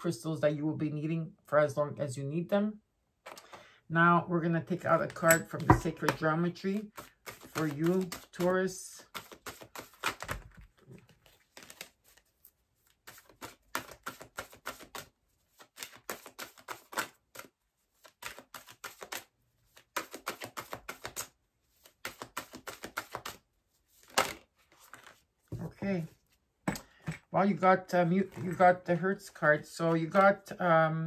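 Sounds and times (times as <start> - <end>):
cards being shuffled by hand: 4.9 - 26.4, 28.0 - 30.6.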